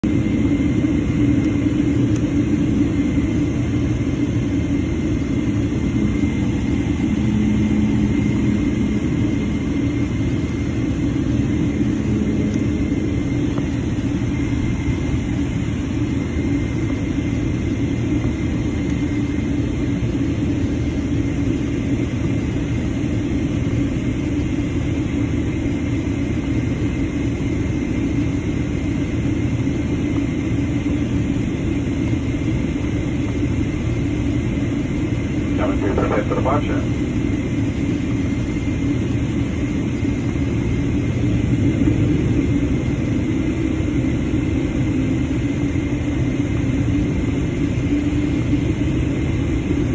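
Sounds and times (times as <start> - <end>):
jet engines droning: 0.0 - 49.9
faint high whine: 0.1 - 21.6, 31.8 - 49.9.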